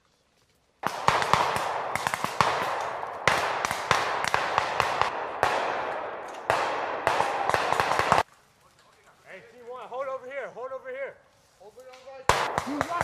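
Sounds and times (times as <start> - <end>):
loud echoing gunshot cracks: 0.8 - 8.2, 12.3 - 13.0
rapid rifle shots: 0.8 - 8.2, 12.3 - 13.0.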